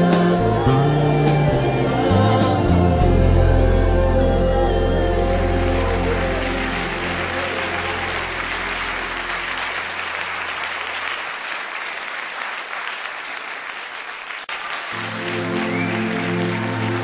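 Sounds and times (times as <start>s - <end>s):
backing music: 0.0s - 10.8s, 14.9s - 17.0s.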